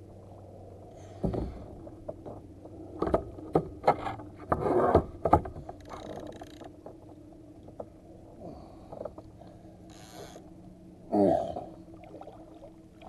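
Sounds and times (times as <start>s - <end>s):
knocks and scrapes on plastic kayak: 3.0s - 5.8s.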